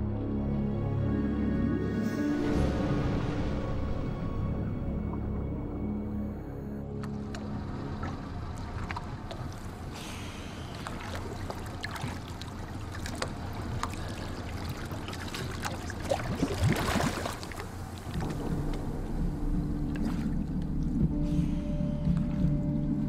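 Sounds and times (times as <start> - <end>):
water splashing and lapping: 6.8 - 23.0.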